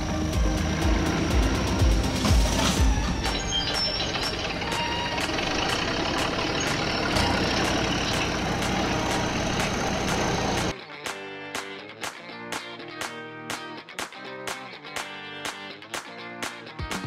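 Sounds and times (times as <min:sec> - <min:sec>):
mechanical engine running: 0:00.0 - 0:10.7
strummed guitar music: 0:00.0 - 0:17.0.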